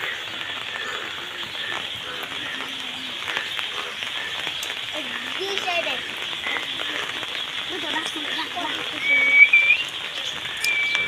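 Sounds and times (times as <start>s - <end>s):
rain on flooded ground: 0.0s - 11.0s
sharp drop ticks: 3.2s - 11.0s.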